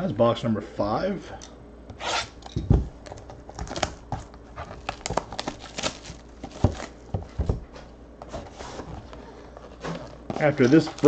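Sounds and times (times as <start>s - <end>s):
cellophane crinkling and tearing: 3.0s - 7.1s, 8.3s - 11.0s.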